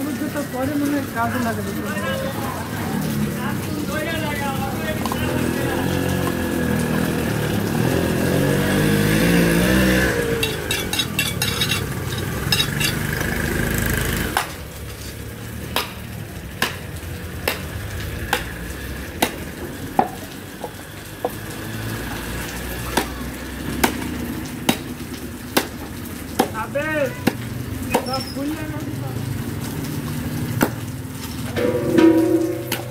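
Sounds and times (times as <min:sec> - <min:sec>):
loud motor rumble: 0:05.2 - 0:14.4.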